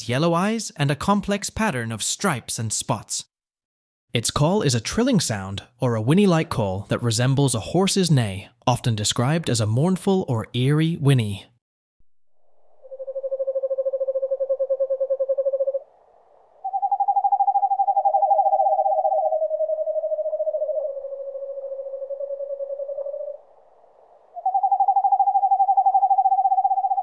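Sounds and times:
owl trilling: 0:12.6 - 0:27.0.

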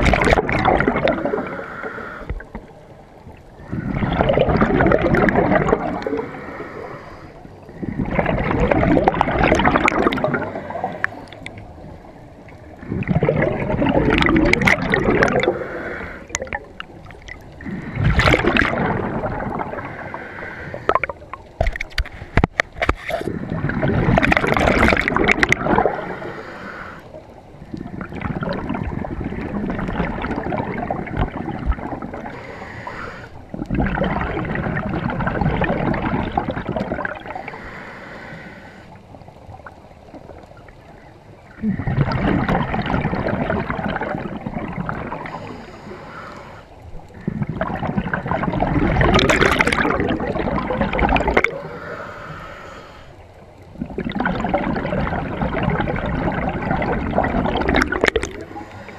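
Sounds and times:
gurgling exhaled bubbles: 0:00.0 - 0:02.7, 0:03.3 - 0:37.8, 0:39.1 - 0:45.6, 0:47.0 - 0:52.3, 0:53.6 - 0:58.9
diver breathing through regulator: 0:01.3 - 0:02.6, 0:06.1 - 0:08.0, 0:15.3 - 0:16.4, 0:19.7 - 0:21.0, 0:25.9 - 0:27.2, 0:32.3 - 0:33.4, 0:37.3 - 0:39.0, 0:45.2 - 0:47.6, 0:51.4 - 0:53.2, 0:58.2 - 0:58.9.

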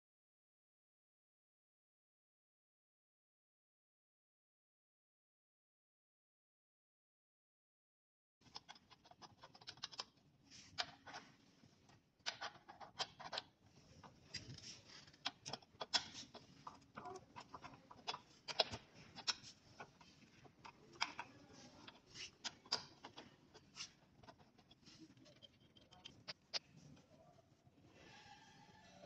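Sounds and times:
plastic cable connectors clicking: 0:14.3 - 0:24.8.

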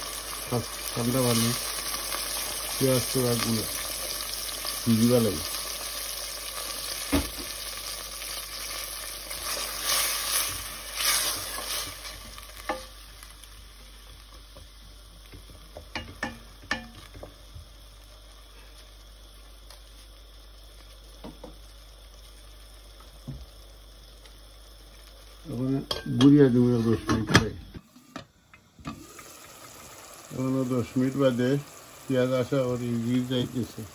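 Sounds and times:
onions sizzling in oil: 0:00.0 - 0:33.9
wooden spatula knocking on pot: 0:15.7 - 0:17.3.

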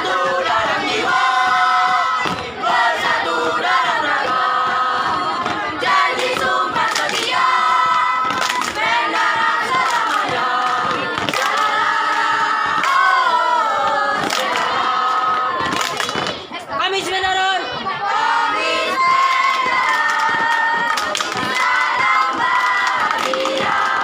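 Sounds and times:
children singing a cheer in unison: 0:00.0 - 0:16.7, 0:17.6 - 0:24.0.

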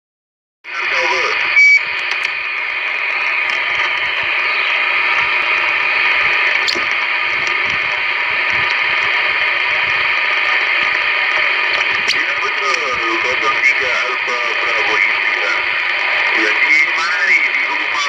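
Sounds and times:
radio static hiss: 0:00.7 - 0:18.0
sharp click: 0:06.6 - 0:06.9.

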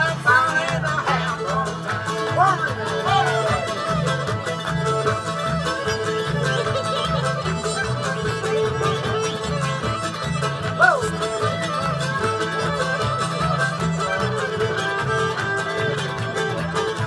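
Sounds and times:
fiddle lead: 0:00.0 - 0:17.0
string band playing: 0:00.0 - 0:17.0
person whooping: 0:10.8 - 0:11.1.

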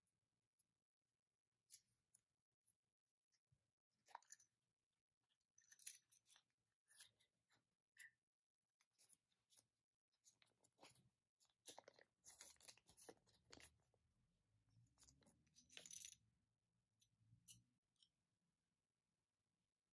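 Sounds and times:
paper crinkling and rustling: 0:10.3 - 0:14.0.

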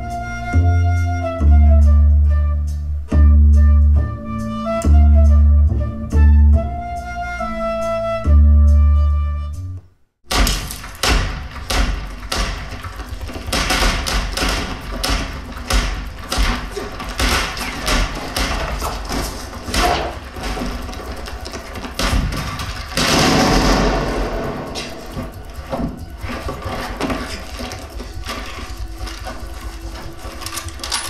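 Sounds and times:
deep bass thuds: 0:10.2 - 0:26.7
gunshots from speakers: 0:22.0 - 0:25.3.

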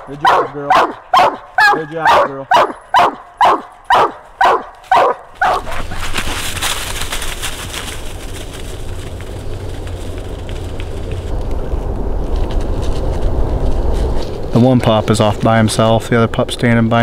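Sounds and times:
hound barking: 0:00.0 - 0:06.0
rustle of dry leaves: 0:04.8 - 0:15.7.

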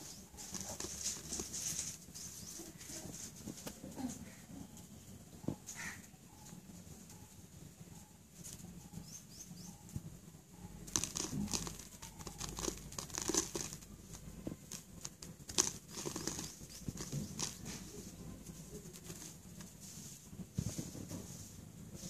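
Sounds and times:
paper crinkling: 0:00.3 - 0:02.1, 0:10.9 - 0:18.0
slate crumbling and scratching: 0:10.9 - 0:17.8.

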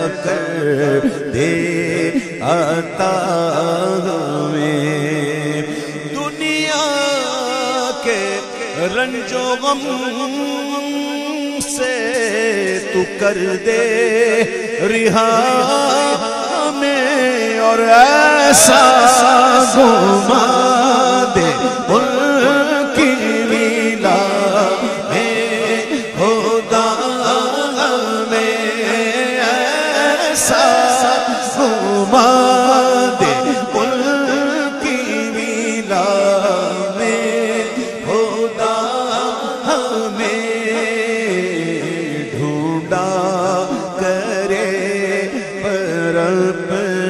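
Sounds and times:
man singing devotional song: 0:00.0 - 0:47.0.

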